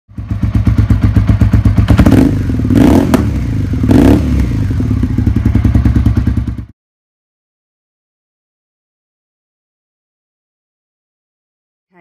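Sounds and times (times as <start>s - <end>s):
motorcycle engine revving: 0.1s - 6.7s.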